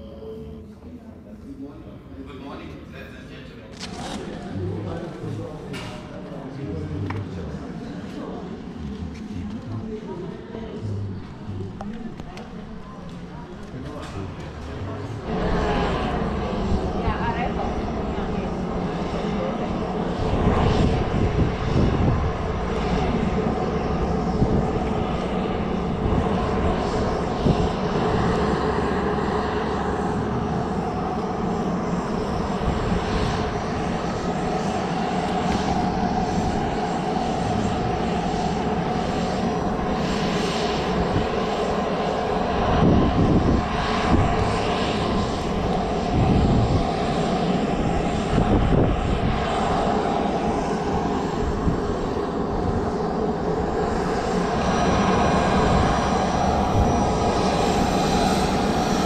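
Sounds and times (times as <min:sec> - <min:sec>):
jet turbines whining: 0:00.0 - 0:59.0
wind on microphone: 0:14.8 - 0:29.0, 0:30.0 - 0:59.0.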